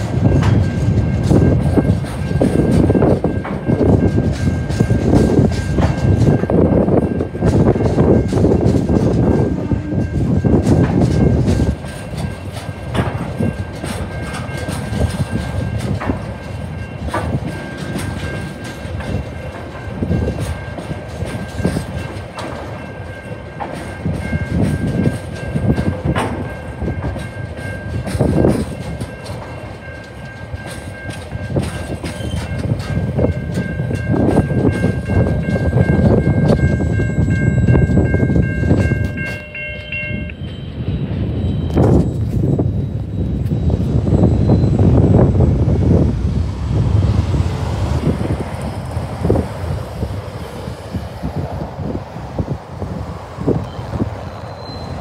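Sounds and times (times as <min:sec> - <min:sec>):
freight train rumbling: 0:00.0 - 0:55.0
train wheels clicking over rails: 0:00.0 - 0:55.0
steady high tone: 0:32.5 - 0:50.7.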